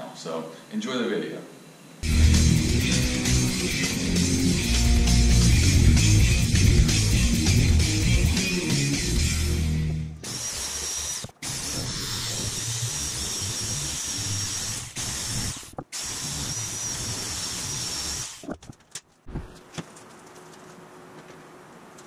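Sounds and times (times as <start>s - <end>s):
electric metal shear whining: 2.0s - 18.5s.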